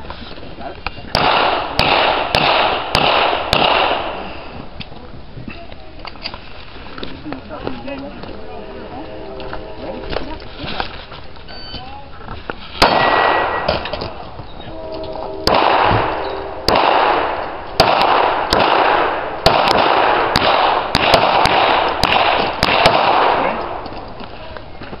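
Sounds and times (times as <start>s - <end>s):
pistol shots echoing: 1.1s - 4.3s, 12.8s - 14.2s, 15.4s - 24.0s.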